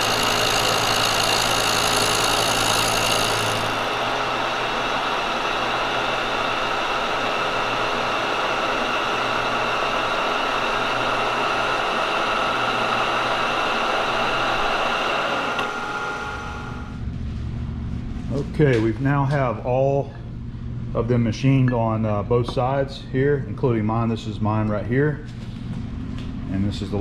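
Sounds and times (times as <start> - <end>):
high ringing tones of metal cutting: 0.0 - 17.0
milling machine running: 0.0 - 17.0.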